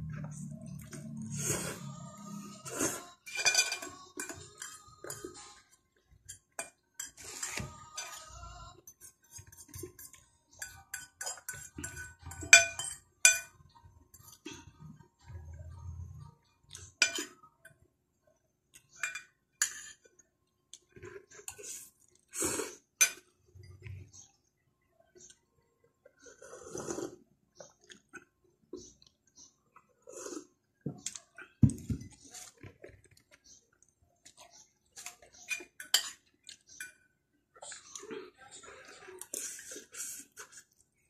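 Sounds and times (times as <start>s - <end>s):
slurping: 0.1s - 3.2s, 26.1s - 31.5s, 37.6s - 41.0s
cutlery clinking on a dish: 3.2s - 5.6s, 6.2s - 8.3s, 8.9s - 14.8s, 16.7s - 17.5s, 18.8s - 20.1s, 35.0s - 37.1s
chewing: 25.0s - 41.0s.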